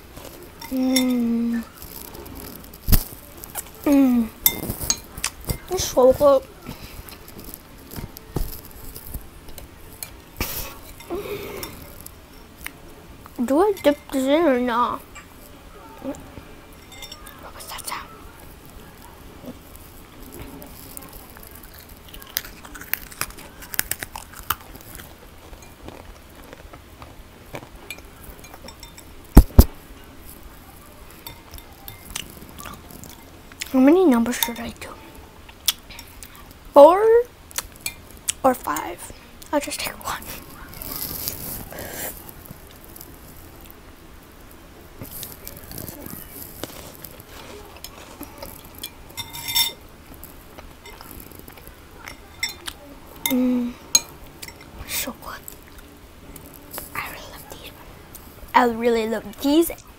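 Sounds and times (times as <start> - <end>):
soft eating sounds: 0.0 - 59.9
person humming: 0.7 - 1.7
metal spoon clinking in glass bowl: 4.4 - 5.7, 16.8 - 17.4, 27.9 - 29.2, 48.8 - 49.8
quiet chewing: 15.1 - 33.8, 34.4 - 36.6, 37.5 - 43.8, 45.0 - 58.6.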